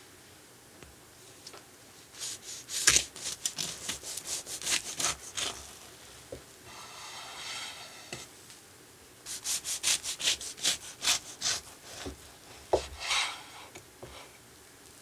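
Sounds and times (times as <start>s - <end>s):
knife sawing through cake crust: 2.2s - 5.8s, 9.3s - 13.6s.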